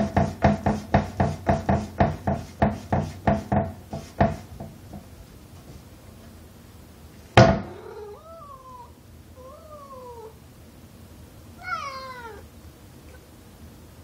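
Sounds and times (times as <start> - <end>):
knock on wooden door: 0.0 - 5.1
cat meowing: 7.8 - 10.4, 11.6 - 12.5.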